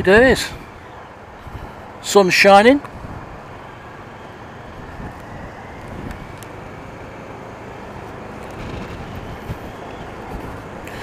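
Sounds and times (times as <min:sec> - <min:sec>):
road noise: 0:00.0 - 0:11.0
wind rushing past helmet: 0:07.8 - 0:11.0.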